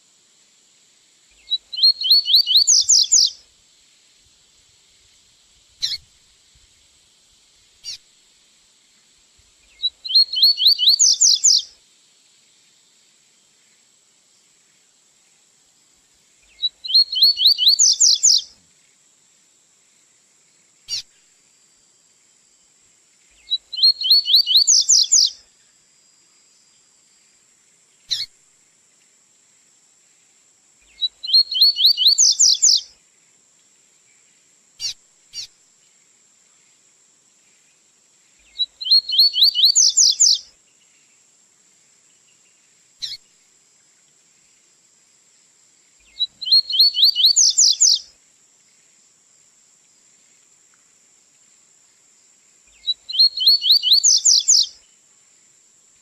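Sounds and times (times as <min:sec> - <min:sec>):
faint high hiss: 0:00.0 - 0:56.0
bird singing trilled phrases: 0:01.4 - 0:03.4, 0:05.8 - 0:06.0, 0:09.7 - 0:11.7, 0:16.5 - 0:18.5, 0:23.4 - 0:25.4, 0:28.1 - 0:28.3, 0:30.9 - 0:32.9, 0:34.8 - 0:35.5, 0:38.4 - 0:40.4, 0:43.0 - 0:43.2, 0:46.0 - 0:48.0, 0:52.7 - 0:54.8.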